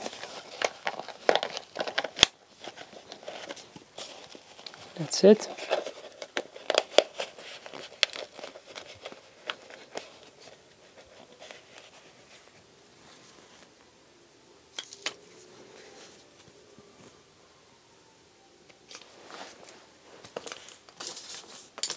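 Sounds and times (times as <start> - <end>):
plastic cup clicking and crinkling: 0.0 - 10.3.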